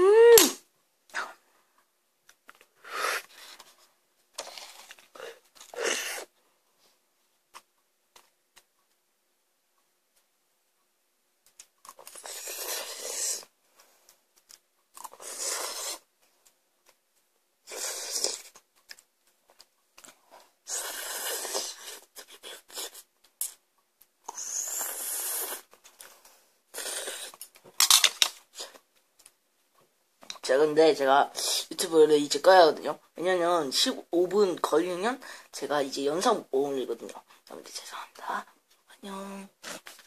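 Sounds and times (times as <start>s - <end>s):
person slurping noodles: 4.4s - 6.3s, 12.0s - 13.5s, 15.0s - 16.1s, 17.7s - 18.6s, 20.7s - 23.0s, 24.3s - 25.8s, 26.7s - 27.4s.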